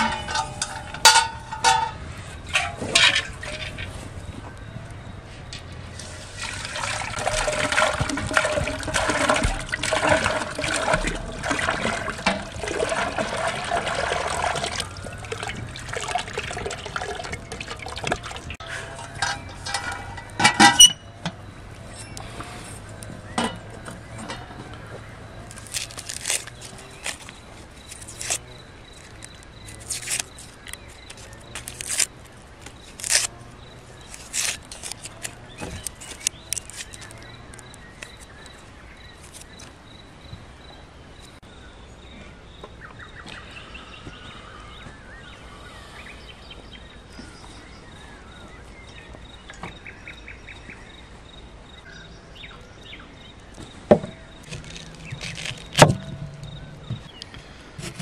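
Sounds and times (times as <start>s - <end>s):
birds chirping: 0.0s - 58.0s
knife peeling dry onion skins: 25.5s - 33.3s, 34.0s - 37.2s, 54.4s - 56.0s.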